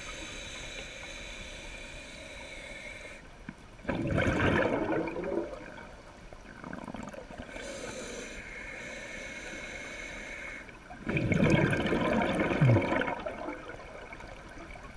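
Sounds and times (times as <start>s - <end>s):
regulator inhale hiss: 0.0s - 3.4s, 7.5s - 10.9s
exhaled bubbles gurgling: 3.8s - 7.7s, 10.8s - 14.9s.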